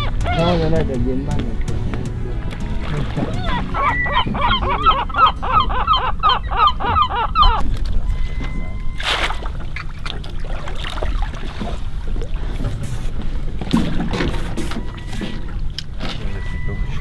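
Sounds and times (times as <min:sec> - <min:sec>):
gull harsh cries: 0:00.0 - 0:01.0, 0:02.8 - 0:09.4
low steady rumble: 0:00.0 - 0:17.0.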